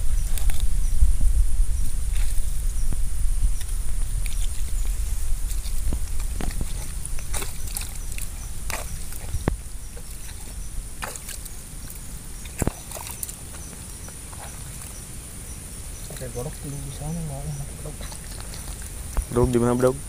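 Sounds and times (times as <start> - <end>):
hands squelching through mud: 3.6 - 15.1, 17.5 - 19.4.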